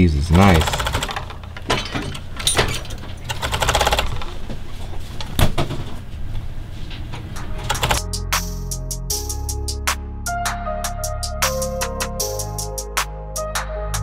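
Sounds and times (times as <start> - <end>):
overlock sewing machine clatter: 0.6 - 4.4
background music with beat: 7.4 - 14.0.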